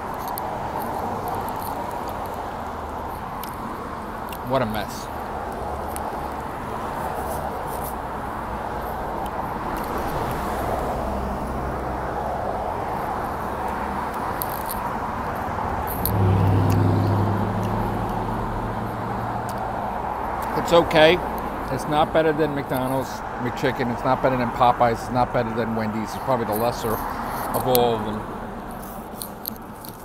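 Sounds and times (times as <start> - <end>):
street traffic noise: 0.0 - 30.0
passing vehicle engine drone: 14.9 - 21.7.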